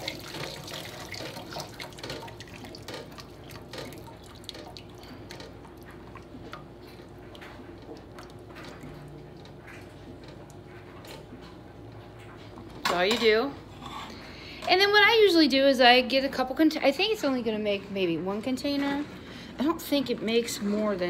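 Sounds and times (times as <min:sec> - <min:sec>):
broth dripping into a bowl: 0:00.0 - 0:10.9.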